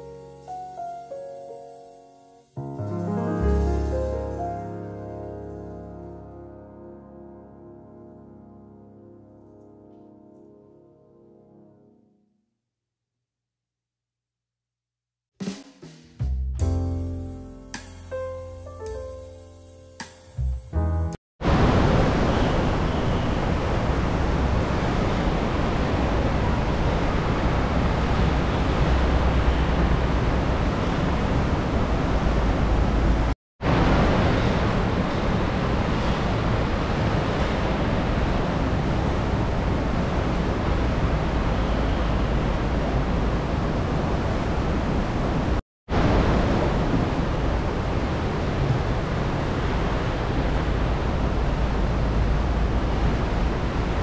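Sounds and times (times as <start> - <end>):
wind rushing over microphone: 21.4 - 54.0.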